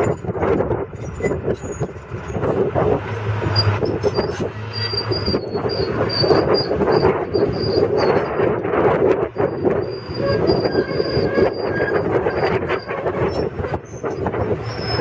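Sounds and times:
excavator clattering rumble: 0.0s - 15.0s
faint high squeal: 3.6s - 8.4s, 9.4s - 13.5s, 14.6s - 15.0s.

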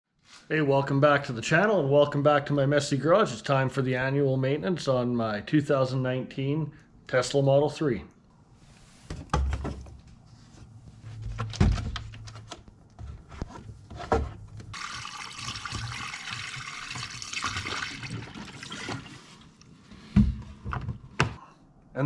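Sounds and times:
knocks and thumps of jug: 9.1s - 10.0s
liquid pouring from plastic jug: 14.7s - 19.6s.

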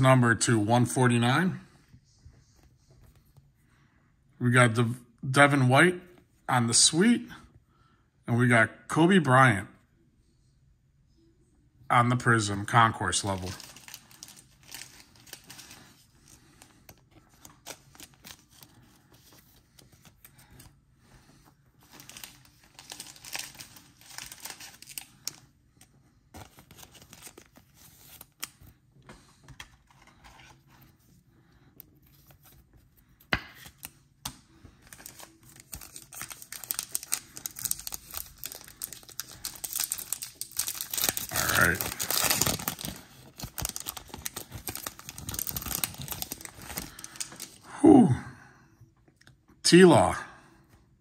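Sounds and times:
trading cards rustling and clicking: 13.2s - 20.8s, 21.8s - 31.1s, 31.7s - 47.6s
foil wrapper tearing and crinkling: 13.3s - 15.9s, 21.9s - 25.4s, 34.9s - 47.6s.

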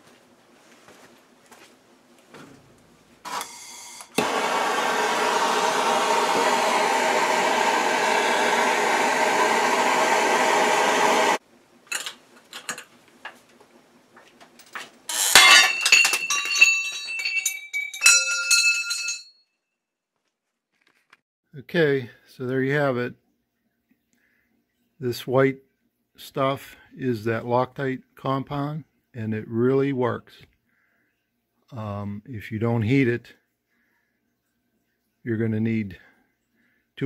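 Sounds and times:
gas torch hissing: 3.4s - 11.4s
metal parts clinking: 11.9s - 12.9s, 14.6s - 19.3s.

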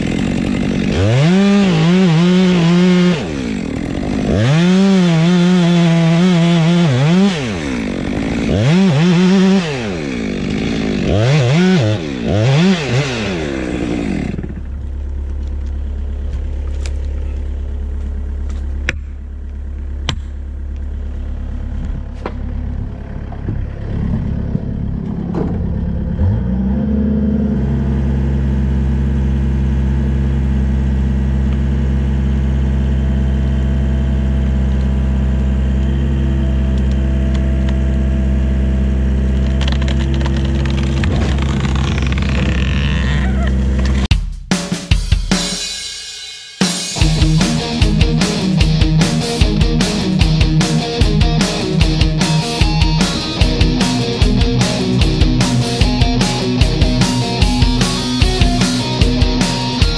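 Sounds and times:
chainsaw revving: 0.0s - 15.5s, 26.1s - 27.7s, 39.3s - 44.1s, 46.7s - 59.9s
diesel engine idling: 13.4s - 44.1s
clicks and clatter: 39.4s - 43.0s.

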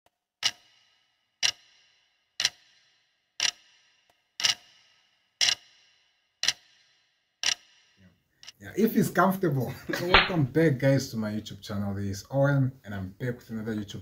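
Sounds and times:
clock ticking: 0.4s - 9.0s.

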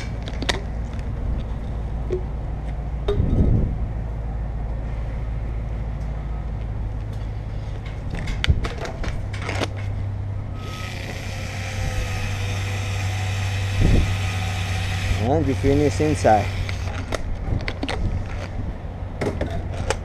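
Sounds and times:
sharp clicks and knocks: 0.0s - 2.3s
steady low hum: 0.0s - 20.0s.

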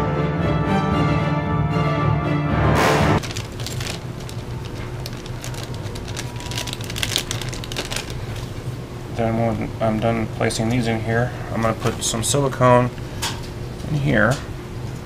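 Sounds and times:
background music: 0.0s - 3.2s
plastic bag crinkling: 3.2s - 8.8s.

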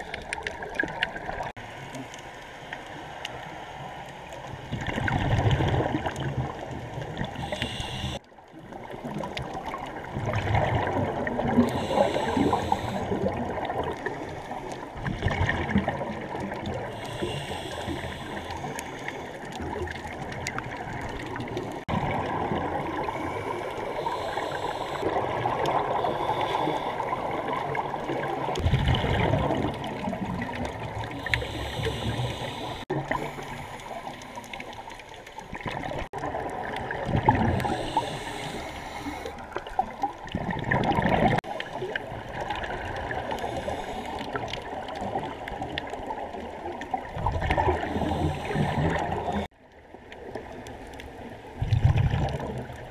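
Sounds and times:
underwater bubbles gurgling: 0.0s - 52.9s.

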